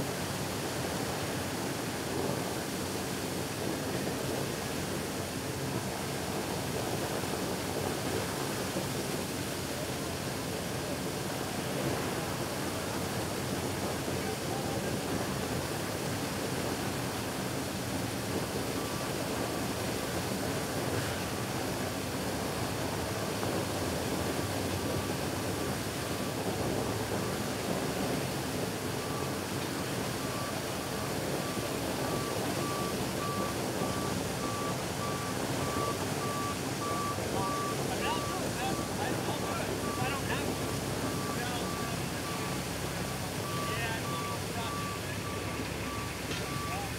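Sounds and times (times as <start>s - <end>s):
water gushing from hydrant: 0.0s - 46.9s
vehicle backup alarm beeping: 10.8s - 46.9s.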